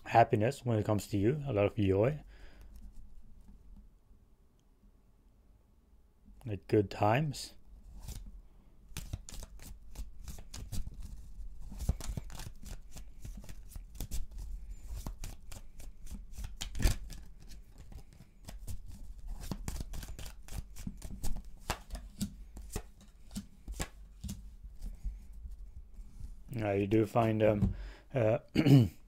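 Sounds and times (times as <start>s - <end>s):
cards shuffling: 7.9s - 8.3s, 8.9s - 25.4s.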